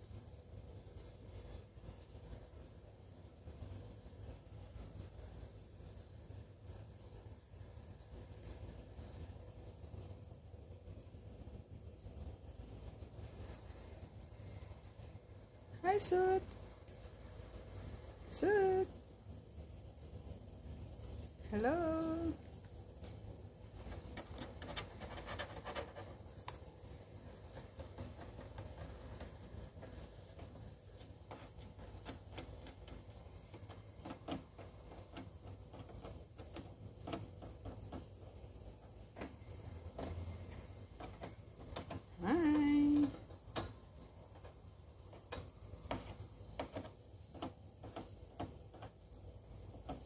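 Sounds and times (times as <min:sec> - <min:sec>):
clicks and scratches on plastic tube: 0:22.0 - 0:50.0.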